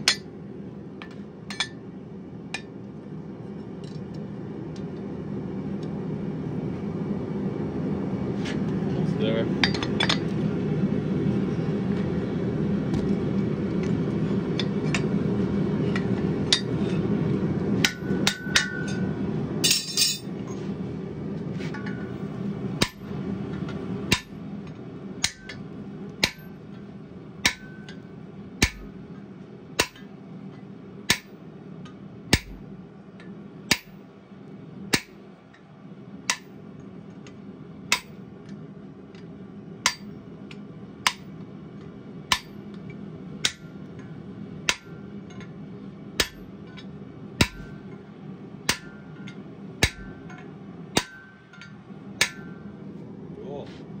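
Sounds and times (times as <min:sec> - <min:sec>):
hammer striking hot metal on anvil: 0:00.0 - 0:00.3, 0:17.8 - 0:20.3, 0:22.8 - 0:23.1, 0:24.1 - 0:24.4, 0:25.2 - 0:25.6, 0:26.2 - 0:26.6, 0:27.4 - 0:28.0, 0:28.6 - 0:29.0, 0:29.8 - 0:30.1, 0:31.1 - 0:31.4, 0:32.3 - 0:32.7, 0:33.7 - 0:34.0, 0:34.9 - 0:35.2, 0:36.3 - 0:36.6, 0:37.9 - 0:38.2, 0:39.8 - 0:40.1, 0:41.0 - 0:41.3, 0:42.3 - 0:42.6, 0:43.4 - 0:44.1, 0:44.7 - 0:45.5, 0:46.2 - 0:47.9, 0:48.6 - 0:52.7.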